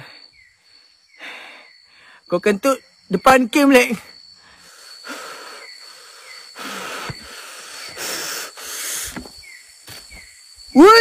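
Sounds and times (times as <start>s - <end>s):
man breathing hard: 0.0s - 2.3s, 4.4s - 9.4s.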